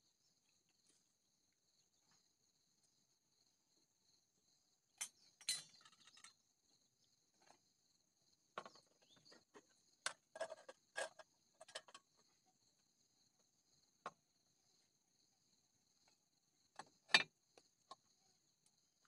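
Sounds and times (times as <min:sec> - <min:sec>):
metal spoon clinking on pots: 0:05.0 - 0:06.2.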